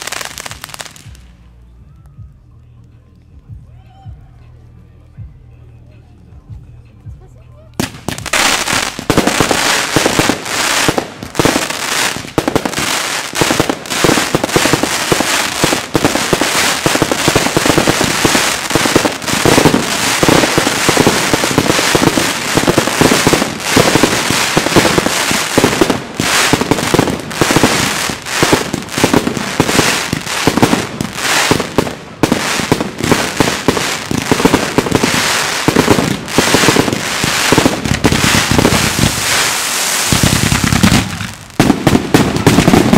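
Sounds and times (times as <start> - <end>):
fireworks bursting and crackling: 0.0 - 42.9.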